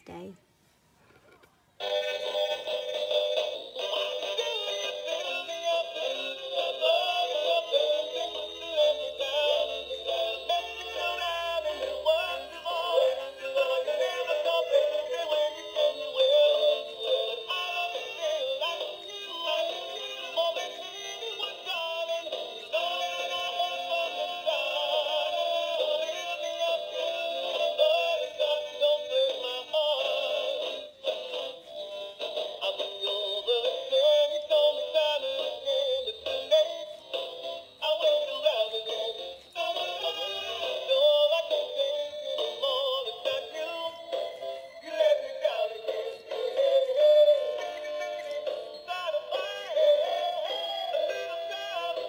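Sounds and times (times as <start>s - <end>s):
toy dog singing through tinny speaker: 1.8s - 52.0s.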